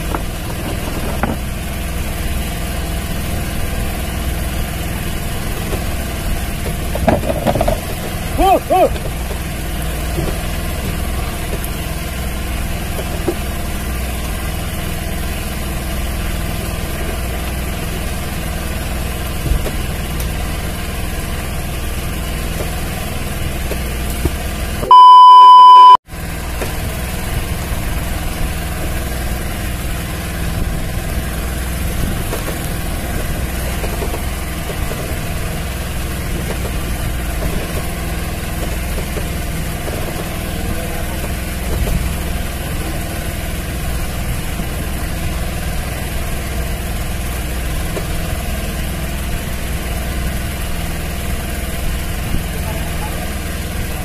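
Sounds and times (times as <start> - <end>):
boat engine idling: 0.0 - 54.0
censor bleep: 24.9 - 26.0.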